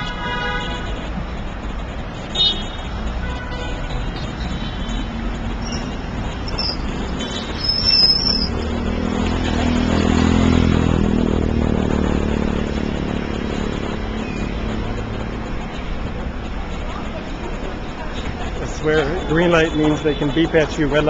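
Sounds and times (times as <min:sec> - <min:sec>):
traffic rumble: 0:00.0 - 0:21.0
engine passing close: 0:05.1 - 0:18.8
high-pitched squeaks: 0:05.4 - 0:08.8.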